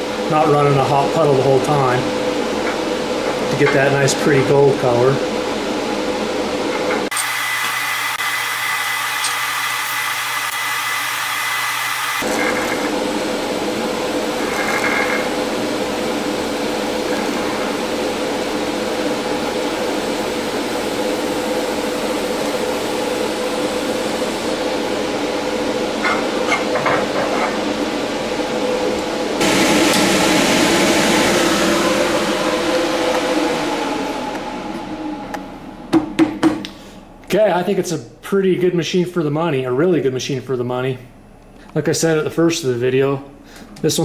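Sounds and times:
pulsing welding arc hiss: 0:07.1 - 0:13.2.

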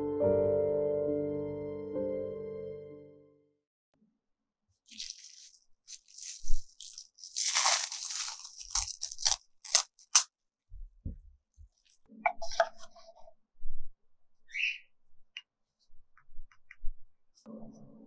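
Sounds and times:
crunchy rustle: 0:04.8 - 0:10.2.

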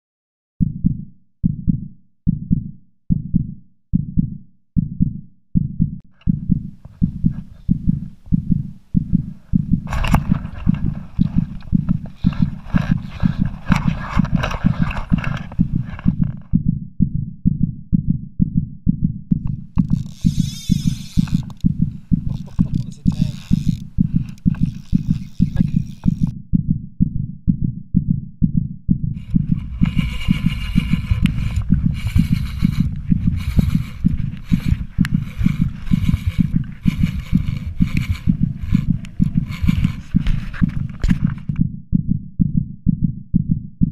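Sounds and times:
heartbeat thumps: 0:00.6 - 0:43.9
hissing noise: 0:29.2 - 0:40.8.

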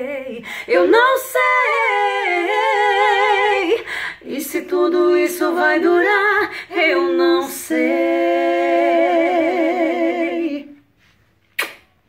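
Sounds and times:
man and woman singing: 0:00.0 - 0:10.8.

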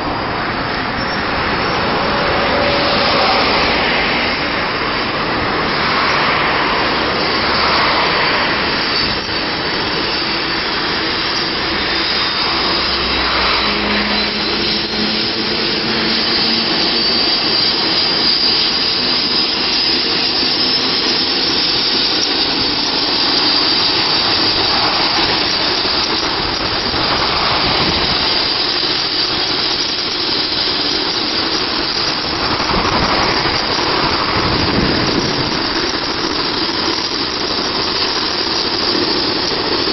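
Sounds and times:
helicopter turbine engine running: 0:00.0 - 0:39.9.

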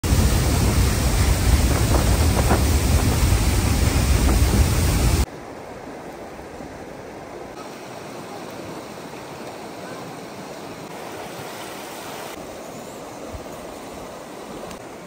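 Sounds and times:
loud low rushing noise: 0:00.0 - 0:05.3.

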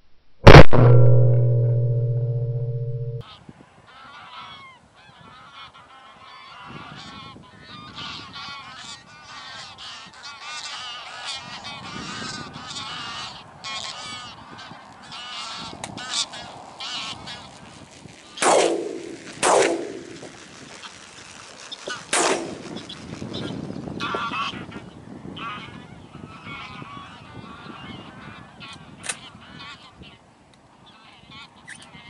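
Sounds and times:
distorted guitar chord: 0:00.4 - 0:03.2
geese honking in flight: 0:03.9 - 0:17.9, 0:23.4 - 0:30.2.

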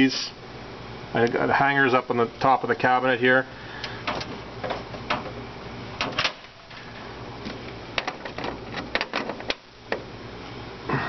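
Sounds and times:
low steady hum: 0:00.0 - 0:11.0
cable plugs clicking and rattling: 0:07.4 - 0:10.1.

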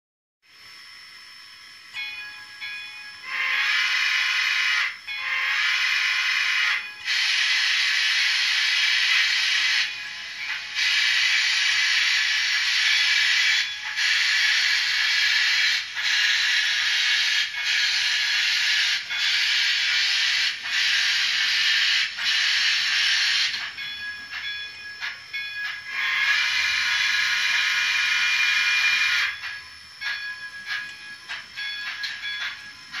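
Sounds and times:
steam hiss: 0:02.4 - 0:33.0
steam whistle through small speaker: 0:03.3 - 0:09.9, 0:10.8 - 0:23.6, 0:25.9 - 0:29.4.

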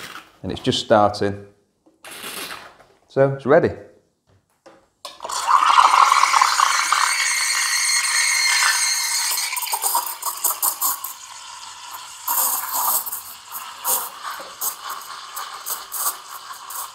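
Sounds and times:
steam wand hissing milk: 0:05.5 - 0:16.9.

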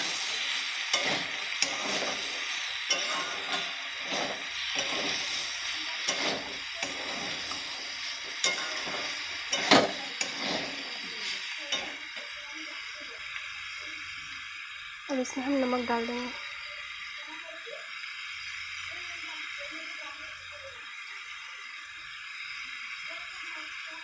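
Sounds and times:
spatula scraping a pan: 0:00.0 - 0:12.4
vegetables sizzling in oil: 0:00.0 - 0:24.0.

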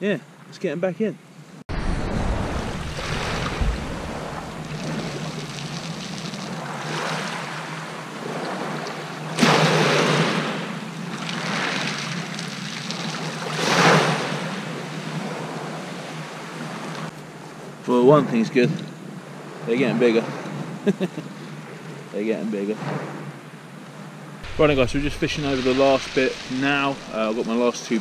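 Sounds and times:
waves washing up shingle beach: 0:01.7 - 0:17.1, 0:24.4 - 0:28.0.

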